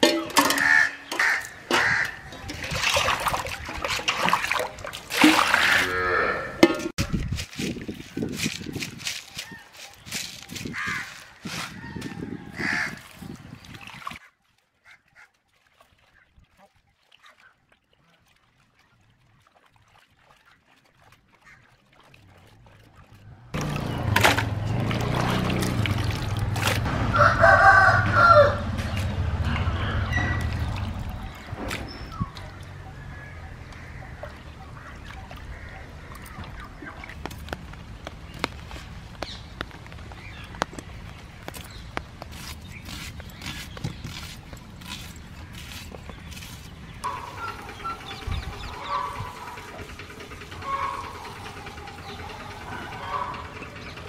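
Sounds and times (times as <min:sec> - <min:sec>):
water sloshing in a pan: 0:00.0 - 0:05.8, 0:12.5 - 0:26.9
rooster crowing: 0:27.1 - 0:28.7.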